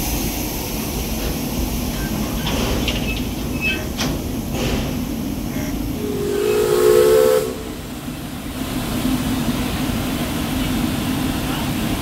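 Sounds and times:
steam whistle blast: 6.0 - 7.8.

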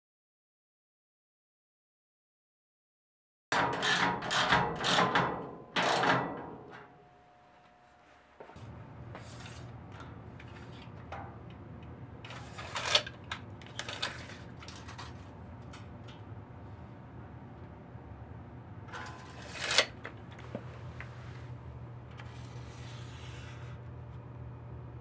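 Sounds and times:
low steady hum: 5.5 - 25.0
tape measure clicks and rattles: 12.3 - 15.9, 18.9 - 20.0
tools scraping on steel stand: 18.9 - 20.0.

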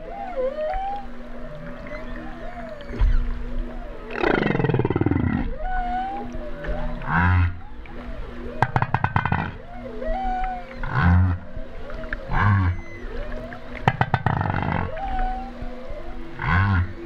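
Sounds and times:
whale calls underwater: 0.0 - 17.0
whale low grunt: 4.1 - 6.3, 10.8 - 11.5, 13.9 - 15.5, 16.4 - 17.0.

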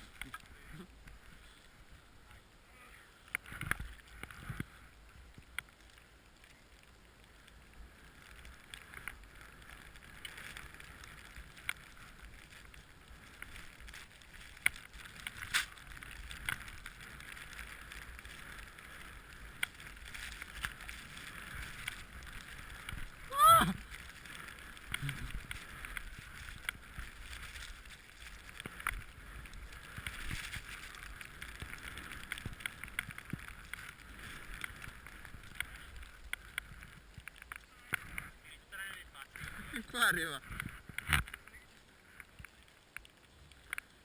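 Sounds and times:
skis hissing through snow: 7.3 - 37.1.

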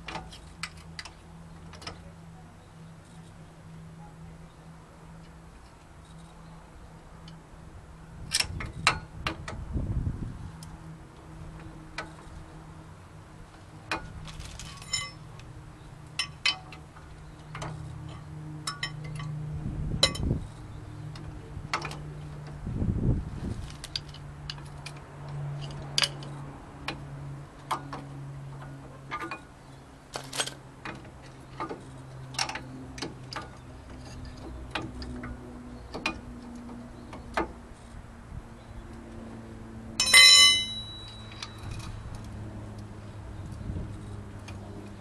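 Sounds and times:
light metal clicks and knocks: 0.0 - 2.1, 11.5 - 12.5, 13.5 - 19.4, 20.0 - 22.6, 23.6 - 38.0
ringing metallic clink: 14.8 - 15.2, 40.0 - 42.0.

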